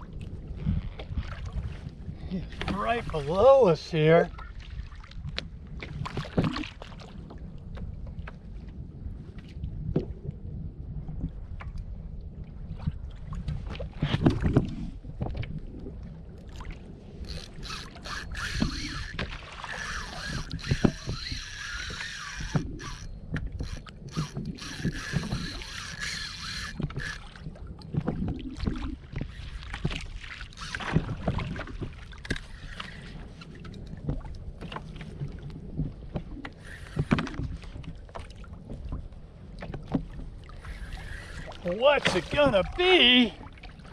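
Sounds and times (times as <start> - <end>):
water slapping kayak hull: 0.0 - 43.9
wind rumbling on microphone: 0.0 - 43.9
fishing reel whirring: 17.2 - 27.4, 30.4 - 31.1, 32.2 - 33.1, 36.5 - 37.4, 40.6 - 42.2.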